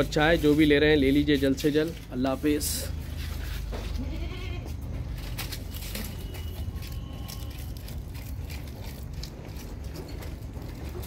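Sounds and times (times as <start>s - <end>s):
goat bleating: 3.6s - 5.2s.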